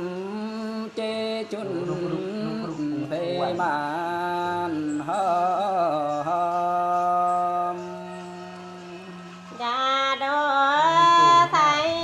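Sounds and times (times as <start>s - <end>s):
man singing folk song: 0.0s - 9.1s.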